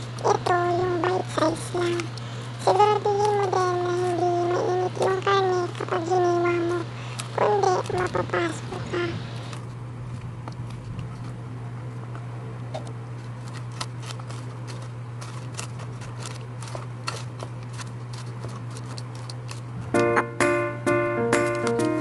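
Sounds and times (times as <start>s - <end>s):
steady low hum: 0.0s - 22.0s
piano music: 19.9s - 22.0s.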